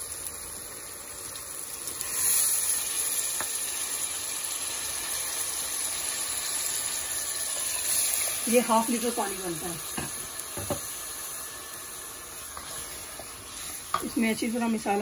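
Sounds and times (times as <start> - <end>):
pot hissing and sizzling: 0.0 - 15.0
water poured into a pot: 0.2 - 8.6.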